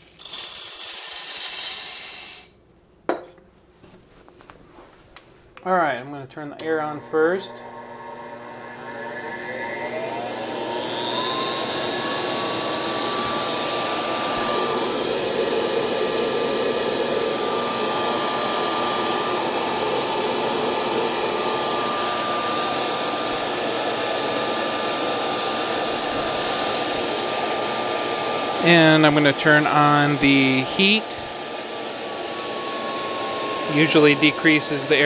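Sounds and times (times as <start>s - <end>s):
coffee beans blowing around: 0.0s - 2.5s, 9.8s - 35.0s
blower motor whining: 6.6s - 35.0s.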